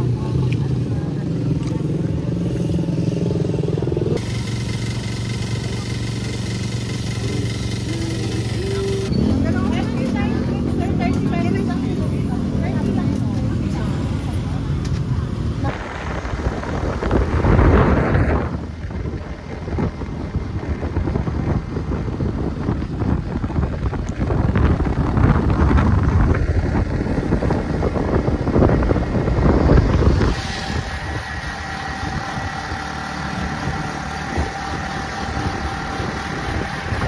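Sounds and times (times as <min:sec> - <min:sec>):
vehicle wind and road noise: 0:00.0 - 0:37.0
held tones: 0:04.2 - 0:09.4.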